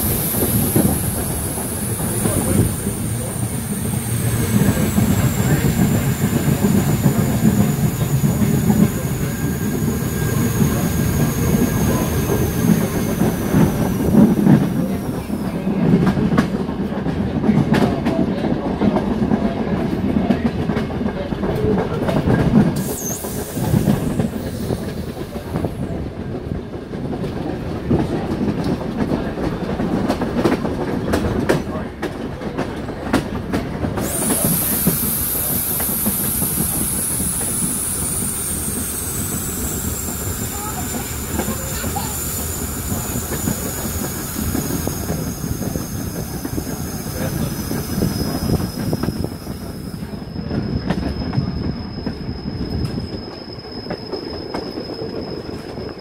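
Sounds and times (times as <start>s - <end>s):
train carriages rumbling on rails: 0.0s - 56.0s
high wheel squeal: 22.8s - 25.6s, 34.0s - 56.0s.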